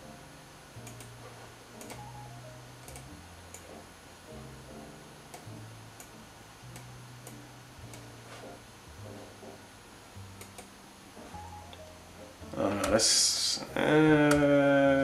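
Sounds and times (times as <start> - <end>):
computer clicks: 0.8 - 1.2, 1.8 - 2.1, 2.8 - 3.7, 10.4 - 10.7.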